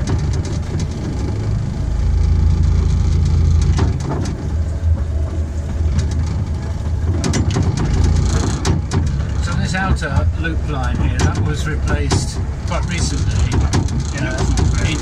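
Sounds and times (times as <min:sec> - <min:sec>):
locomotive engine humming: 0:00.0 - 0:15.0
wheels clicking over rails: 0:00.0 - 0:15.0.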